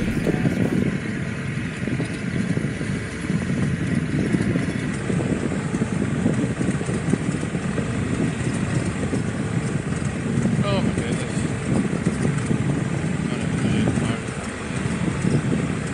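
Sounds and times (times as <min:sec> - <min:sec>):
motorcycle engine rumbling: 0:00.0 - 0:00.9.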